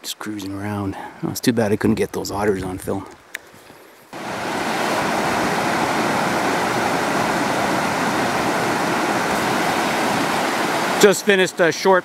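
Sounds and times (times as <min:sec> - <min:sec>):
creek water rushing over rocks: 0:04.1 - 0:12.0.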